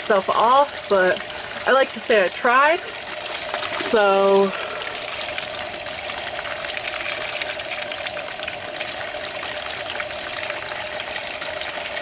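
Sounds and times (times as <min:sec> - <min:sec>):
water splashing on plastic wheel: 0:00.0 - 0:12.0.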